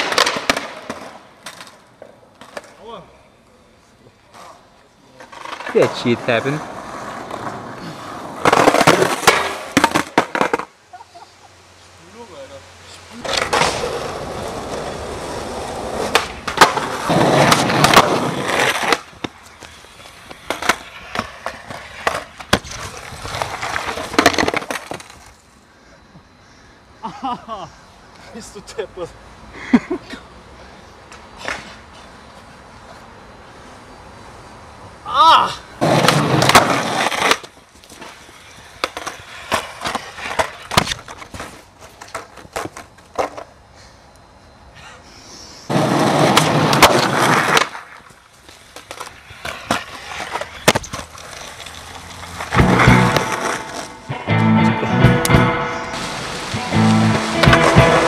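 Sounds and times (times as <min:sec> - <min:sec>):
skateboard clacks: 0:00.0 - 0:02.8, 0:08.2 - 0:10.8, 0:13.2 - 0:25.3, 0:35.8 - 0:43.6, 0:45.7 - 0:58.0
skateboard wheels rolling on pavement: 0:00.0 - 0:58.0
skater slamming impact: 0:38.8 - 0:41.5, 0:52.4 - 0:54.2, 0:55.0 - 0:58.0.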